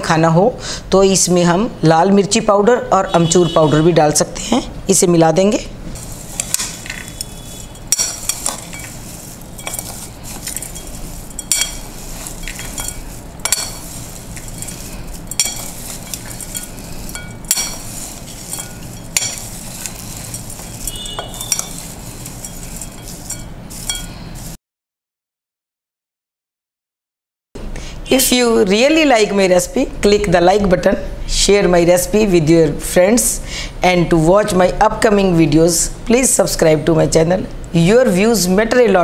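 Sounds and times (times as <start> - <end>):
crisp rustle of crunchy food: 6.0 - 24.6
spoon clinking on bowl: 6.3 - 24.2.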